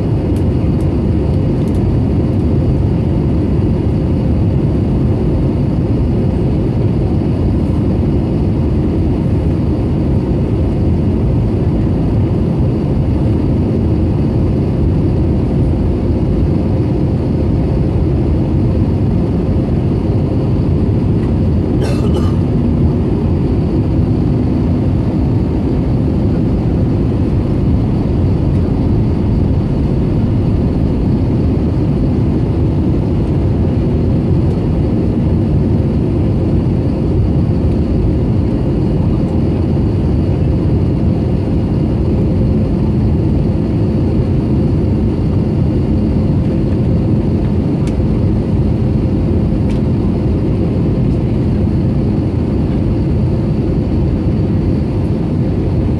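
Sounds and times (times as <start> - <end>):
aircraft cabin engine roar: 0.0 - 55.9
faint steady hum: 14.8 - 39.3.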